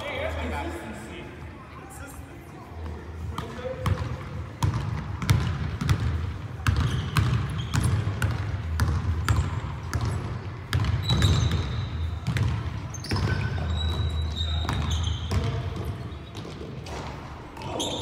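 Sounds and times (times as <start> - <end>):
basketball bouncing on wooden floor: 3.8 - 16.7.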